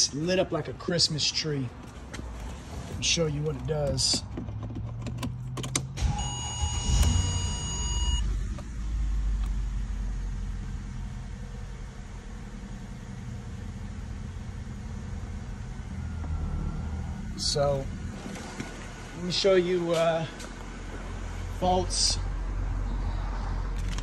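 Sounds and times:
car engine cranking and idling: 0.0s - 24.0s
electronic warning chime: 6.1s - 8.2s.

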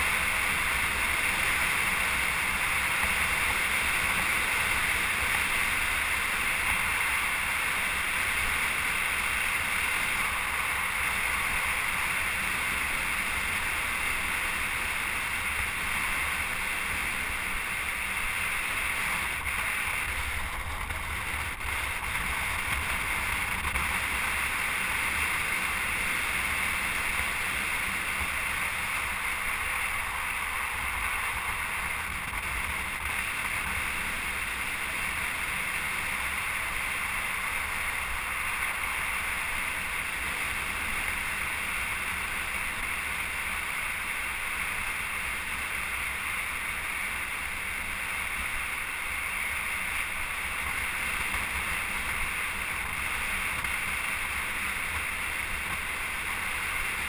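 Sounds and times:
road noise: 0.0s - 57.0s.

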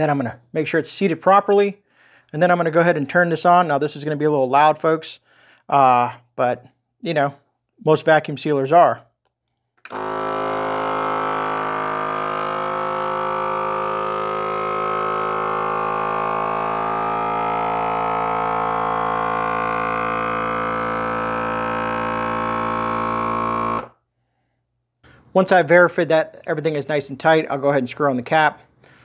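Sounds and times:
vacuum sealer pump humming: 9.8s - 24.0s.

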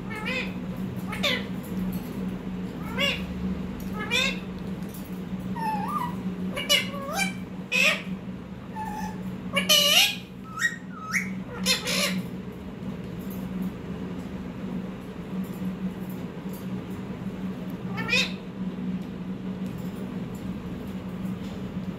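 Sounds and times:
parakeet calling: 0.0s - 1.6s, 2.7s - 3.3s, 3.9s - 4.5s, 5.5s - 12.3s, 17.8s - 18.5s
steady low hum: 0.0s - 21.9s.

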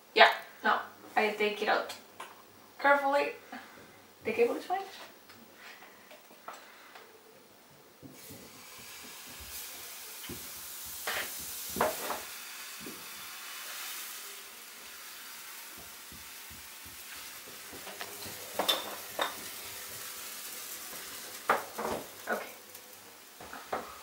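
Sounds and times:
batter sizzling in a frying pan: 8.0s - 24.0s.

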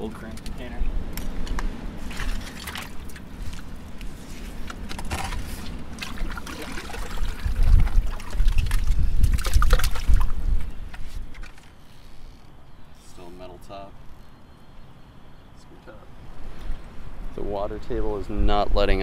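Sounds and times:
water trickling and splashing: 1.4s - 12.3s
shovel scraping wet mud: 2.0s - 10.3s
hands sloshing through water: 2.0s - 11.6s.

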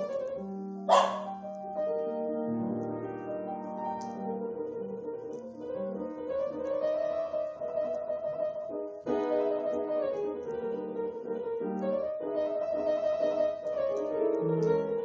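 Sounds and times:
grand piano chords and melody: 0.0s - 15.0s.

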